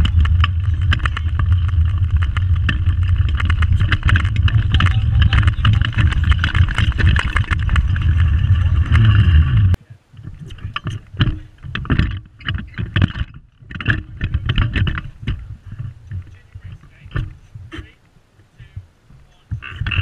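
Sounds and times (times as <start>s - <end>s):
go-kart rolling rumble: 0.0s - 17.9s, 18.6s - 20.0s
kart rattling and knocking: 0.0s - 17.9s, 19.5s - 20.0s.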